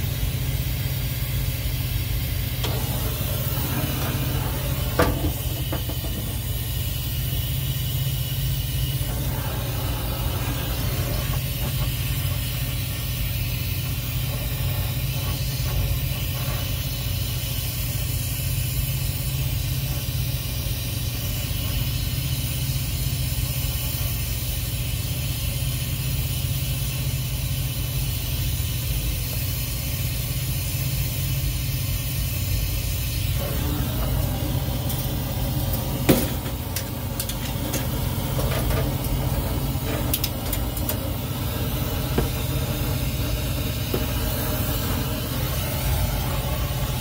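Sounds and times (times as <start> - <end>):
torch flame rumbling and hissing: 0.0 - 47.0.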